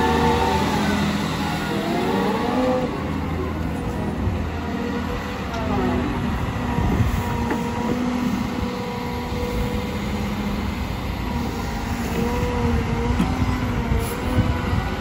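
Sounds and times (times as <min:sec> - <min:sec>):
excavator engine and hydraulics: 0:00.0 - 0:15.0.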